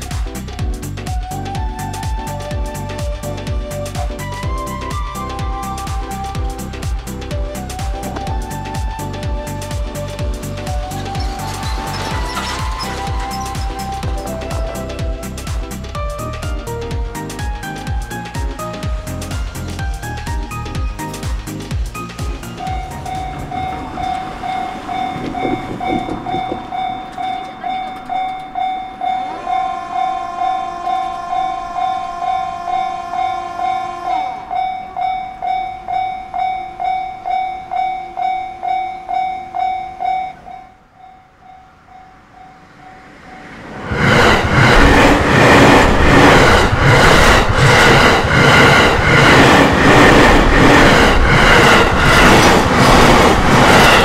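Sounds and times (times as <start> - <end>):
train wheels clacking over joints: 10.4 - 15.9, 20.8 - 29.4, 43.9 - 54.0
level-crossing warning bell: 10.5 - 15.8, 22.4 - 45.1
train horn: 10.7 - 16.3, 28.9 - 35.6, 53.5 - 54.0.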